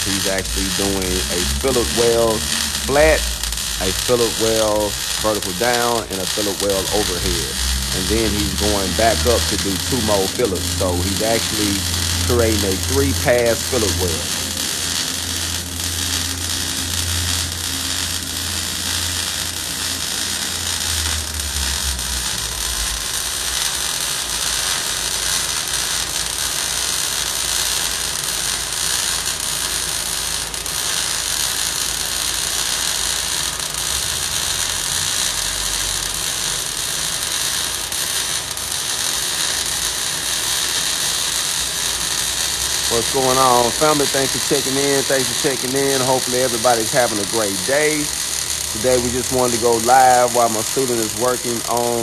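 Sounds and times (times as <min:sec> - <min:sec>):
low hum: 0:00.0 - 0:19.3
welding arc crackling: 0:00.0 - 0:52.0.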